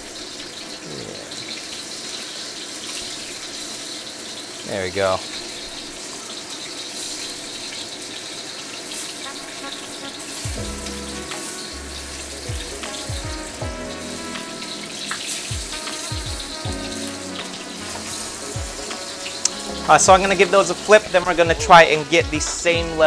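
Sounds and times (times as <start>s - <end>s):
meatballs sizzling in oil: 1.6s - 20.0s
lo-fi hip-hop beat: 9.4s - 23.0s.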